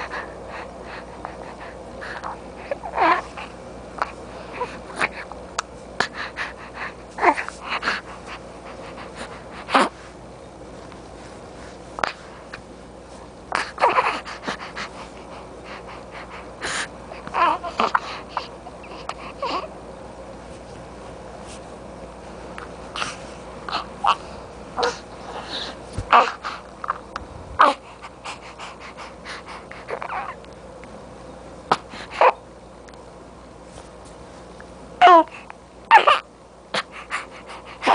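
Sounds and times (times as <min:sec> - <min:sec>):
baby huffing and vocalizing: 0:24.8 - 0:26.6
infant grunting: 0:35.0 - 0:35.3.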